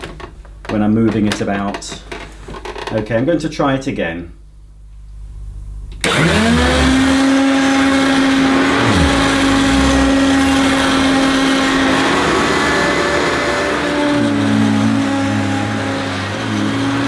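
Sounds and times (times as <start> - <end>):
upright vacuum cleaner motor: 6.0 - 7.9.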